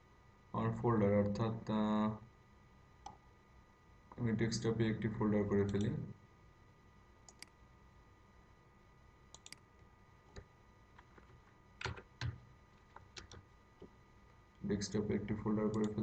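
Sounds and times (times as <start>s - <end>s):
computer mouse clicks: 7.2s - 7.6s, 9.3s - 9.7s, 10.3s - 13.9s, 15.7s - 16.0s
keyboard keys clicking: 11.0s - 13.4s.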